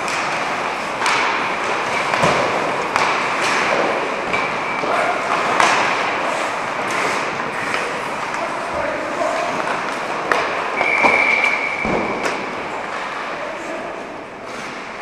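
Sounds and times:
sticks and pucks knocking: 0:00.0 - 0:08.8, 0:09.4 - 0:11.6
skate blades scraping on ice: 0:05.3 - 0:11.6.

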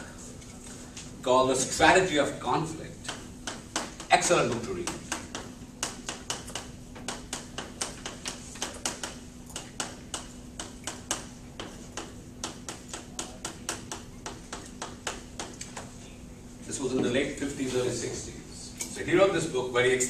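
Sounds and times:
faint steady hum: 0:00.0 - 0:20.0
chalk tapping on a blackboard: 0:03.0 - 0:16.0.

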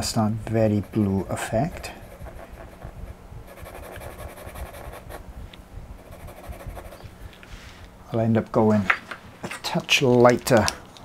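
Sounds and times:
faint steady hum: 0:00.0 - 0:11.0
pencil scratching on paper: 0:00.8 - 0:05.2, 0:06.0 - 0:07.0.

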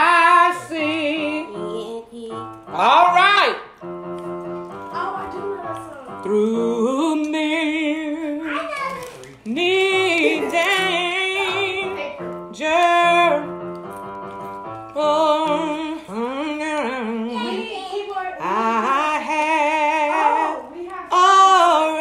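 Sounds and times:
woman singing gospel-style: 0:00.0 - 0:03.1, 0:06.2 - 0:08.4, 0:09.5 - 0:13.6, 0:14.9 - 0:22.0
sustained keyboard notes: 0:00.0 - 0:08.8, 0:09.4 - 0:22.0.

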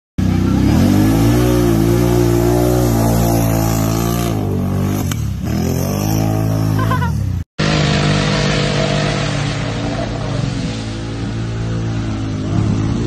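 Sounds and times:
atv engine revving: 0:00.2 - 0:13.0.

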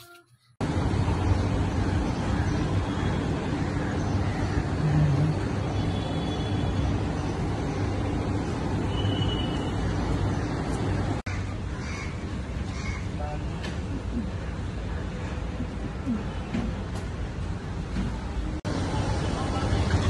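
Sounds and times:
road traffic noise: 0:00.0 - 0:20.0.

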